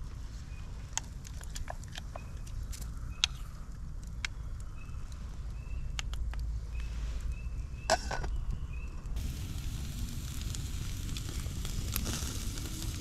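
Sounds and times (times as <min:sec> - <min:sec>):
wood fire crackling and popping: 0:02.7 - 0:06.5, 0:08.4 - 0:13.0
low steady rumble: 0:08.4 - 0:13.0.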